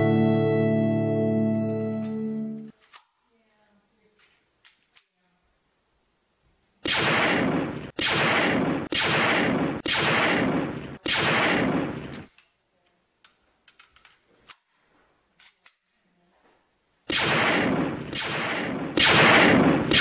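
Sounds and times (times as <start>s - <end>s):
gunshot bangs: 6.8s - 12.3s, 17.1s - 20.0s.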